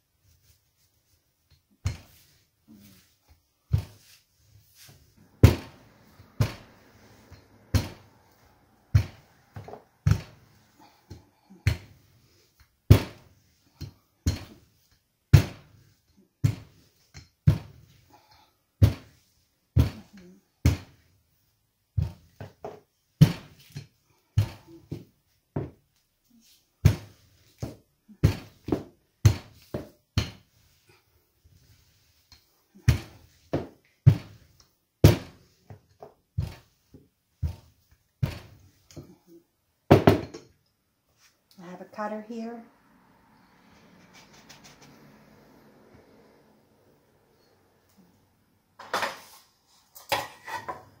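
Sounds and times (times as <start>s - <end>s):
rolling pin thudding on pastry mat: 4.8s - 8.1s, 12.9s - 14.7s, 32.8s - 39.2s.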